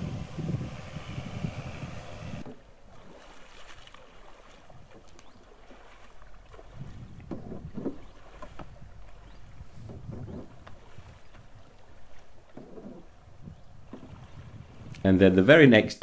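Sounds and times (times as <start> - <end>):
paddle splashing in water: 2.4 - 15.0.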